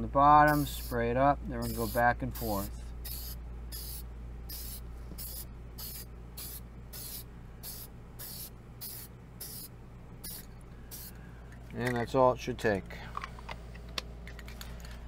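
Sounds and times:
aerosol can spraying: 0.5 - 1.0, 1.6 - 11.1.

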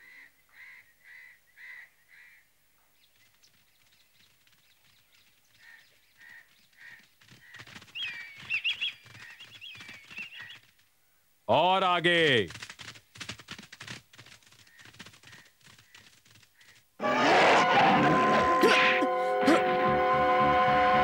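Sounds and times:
rapid patter of short taps: 3.1 - 10.9, 12.2 - 16.9.

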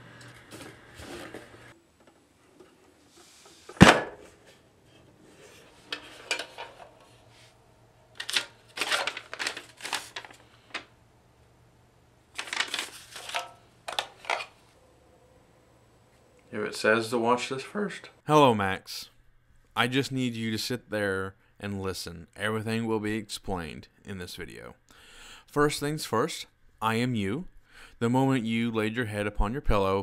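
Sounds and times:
paper unfolding: 8.2 - 10.9, 12.3 - 14.5.

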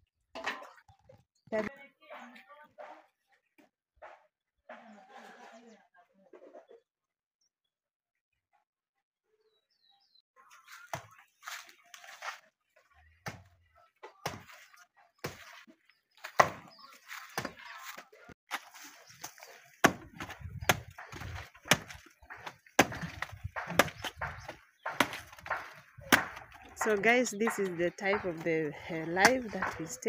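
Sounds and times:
machete chopping: 16.3 - 16.7, 18.5 - 28.4.

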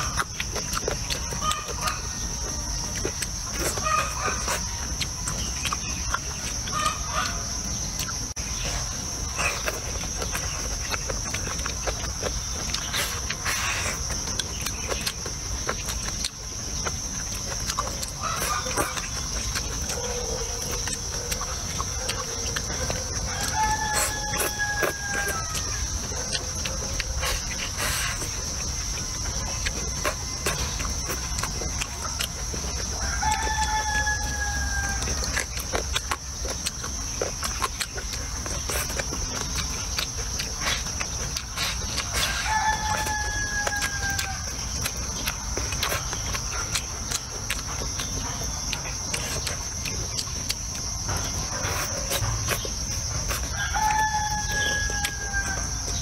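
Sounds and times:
short chewing clicks: 0.0 - 56.0
rooster crowing: 22.0 - 26.8, 32.7 - 35.4, 42.0 - 44.8, 53.4 - 56.0
high insect buzz: 23.3 - 46.9.

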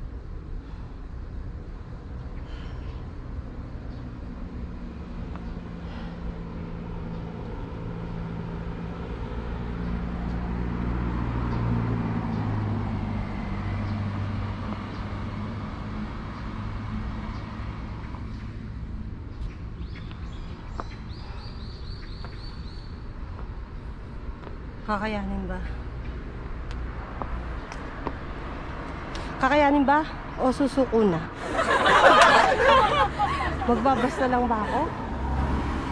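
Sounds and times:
car engine passing: 4.6 - 19.1, 31.3 - 35.9
bird chirping: 19.2 - 23.0.

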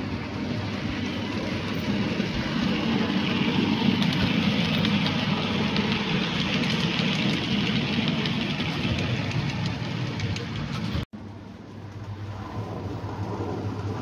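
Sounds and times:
model train rumbling past: 0.0 - 14.0.

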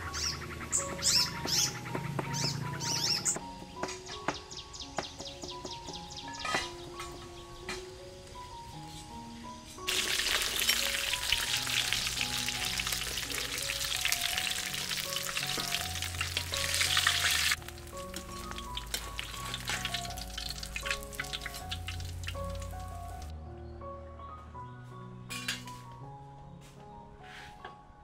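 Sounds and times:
fish frying in hot oil: 9.9 - 23.3.

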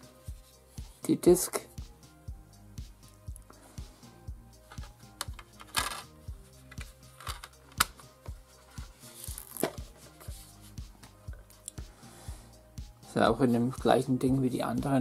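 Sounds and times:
background music with steady beat: 0.0 - 15.0
disc snapping onto plastic hub: 6.8 - 8.1.

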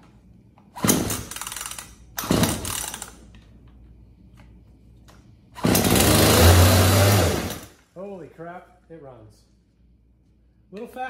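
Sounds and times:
chainsaw engine cranking: 1.0 - 3.2, 5.6 - 7.7.

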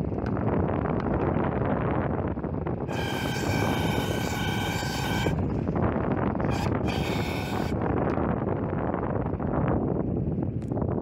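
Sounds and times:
air conditioner fan whirring: 0.0 - 11.0
high whine: 2.8 - 8.1.

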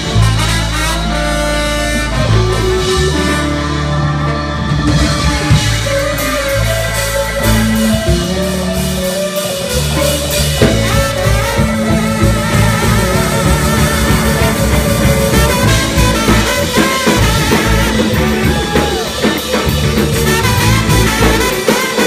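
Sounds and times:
bass guitar: 0.0 - 22.0
blues-rock band playing: 0.0 - 22.0
drum kit beat: 0.0 - 22.0
lead melody with pitch bends: 0.0 - 22.0.

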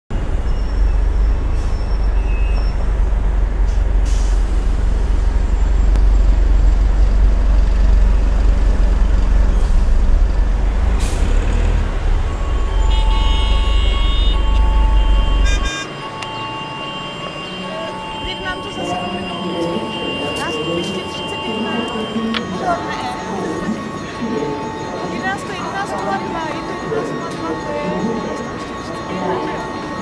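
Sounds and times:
heavy vehicles rumbling: 0.1 - 30.0
air brakes hissing: 3.7 - 5.1, 10.9 - 11.6
car horn toots: 12.5 - 22.6.

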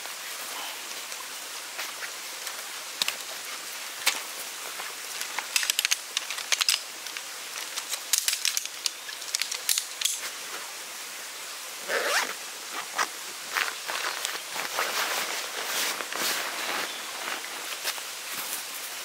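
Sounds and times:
steady outdoor hiss: 0.0 - 19.0
metal poles clicking and rattling: 5.2 - 10.2.

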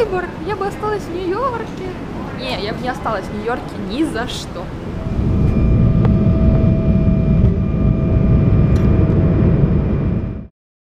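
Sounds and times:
engine rumble with high whine: 4.7 - 10.5.

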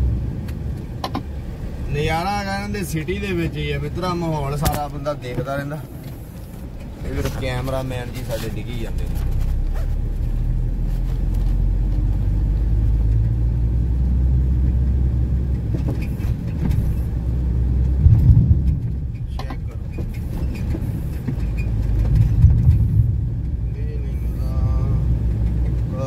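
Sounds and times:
heavy truck engine rumbling: 0.0 - 26.0.

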